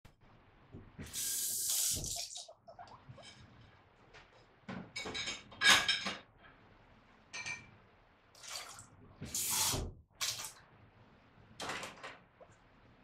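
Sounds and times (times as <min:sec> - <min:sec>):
water running: 0:01.0 - 0:03.4.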